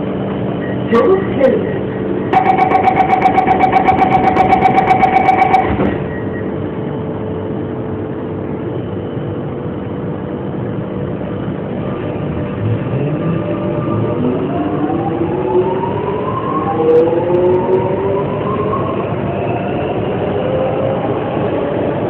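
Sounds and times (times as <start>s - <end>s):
rapid pulsing door warning beep: 2.4s - 6.0s.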